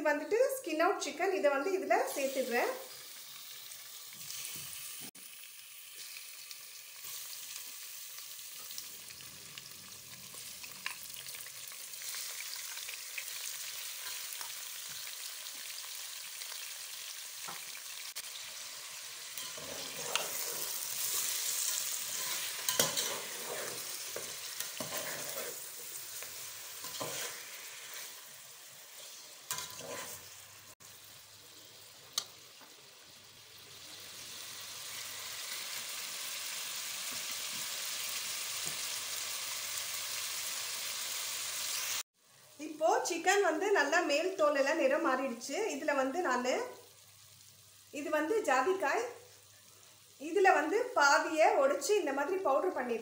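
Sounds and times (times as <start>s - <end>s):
chicken sizzling in hot oil: 1.9s - 42.1s, 45.1s - 53.0s
metal spatula scraping pot: 19.4s - 26.0s, 26.8s - 28.2s, 28.9s - 30.4s
spatula clinking on pot: 22.2s - 23.4s, 29.5s - 30.2s.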